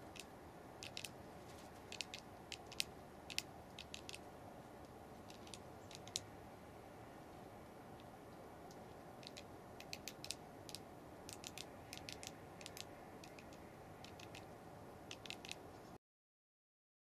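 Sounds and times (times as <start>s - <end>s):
low hiss: 0.0s - 16.0s.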